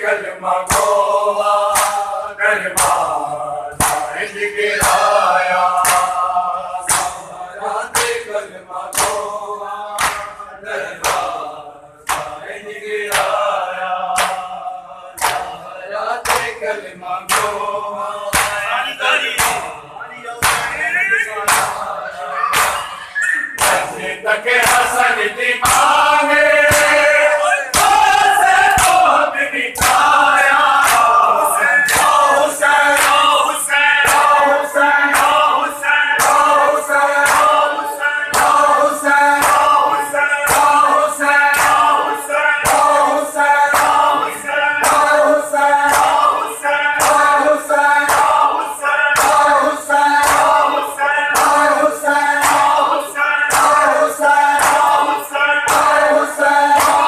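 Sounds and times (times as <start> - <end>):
men chanting in unison: 0.0 - 57.0
hands slapping bare chests: 0.6 - 1.0, 1.7 - 2.1, 2.8 - 4.2, 4.8 - 6.3, 6.9 - 7.3, 7.9 - 8.2, 8.9 - 9.3, 10.0 - 10.4, 11.0 - 11.4, 12.0 - 12.4, 13.1 - 14.6, 15.2 - 15.6, 16.2 - 16.6, 17.3 - 17.6, 18.3 - 18.6, 19.4 - 19.7, 20.4 - 20.8, 21.4 - 21.8, 23.6 - 24.0, 24.6 - 27.0, 27.7 - 29.2, 29.8 - 33.3, 36.2 - 36.6, 37.2 - 38.8, 39.4 - 39.8, 40.5 - 42.0, 43.6 - 45.2, 45.8 - 48.6, 49.2 - 49.5, 50.1 - 51.7, 52.3 - 57.0.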